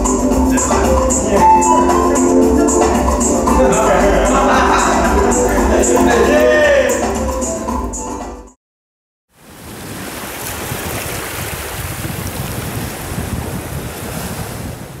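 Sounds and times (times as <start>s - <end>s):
sea waves surf: 9.3s - 15.0s.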